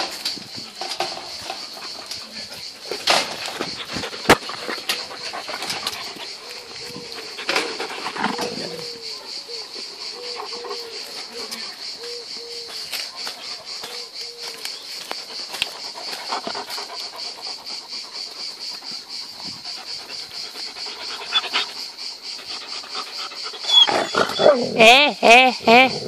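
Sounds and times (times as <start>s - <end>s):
dog whining: 23.6s - 26.0s.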